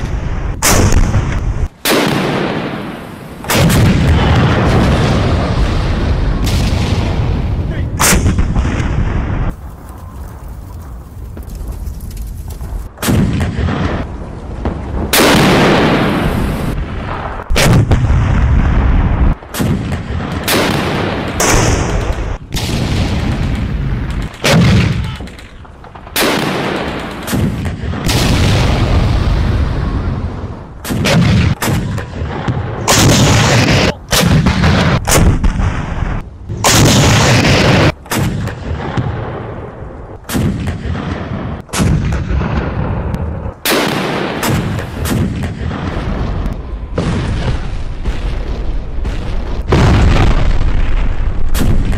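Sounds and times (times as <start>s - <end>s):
anti-aircraft gun firing: 0.6s - 5.8s, 6.4s - 9.5s, 19.1s - 29.3s, 30.8s - 39.6s.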